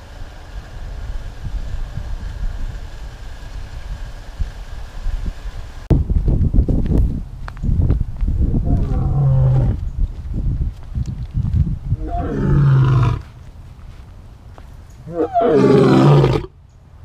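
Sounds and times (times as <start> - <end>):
lion roaring: 8.6 - 9.8, 12.0 - 13.2, 15.1 - 16.5.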